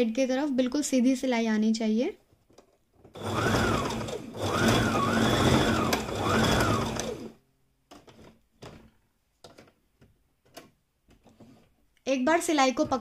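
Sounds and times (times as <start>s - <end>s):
sewing machine stitching: 3.1s - 7.4s.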